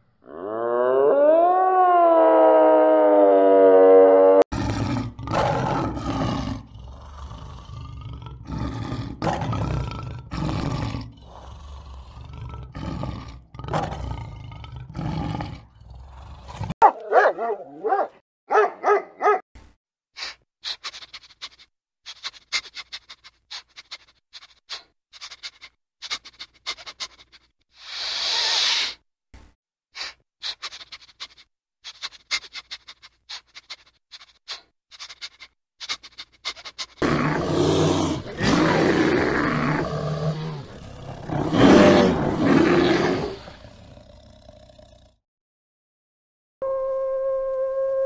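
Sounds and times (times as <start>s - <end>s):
bear growling loudly: 4.5s - 16.8s, 37.0s - 45.2s.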